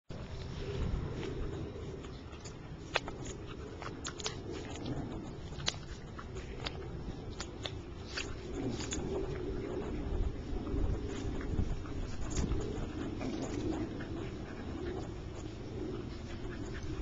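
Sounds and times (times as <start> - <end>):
dogs growling: 1.0 - 17.0
dogs snapping jaws: 2.4 - 9.6, 11.2 - 14.0.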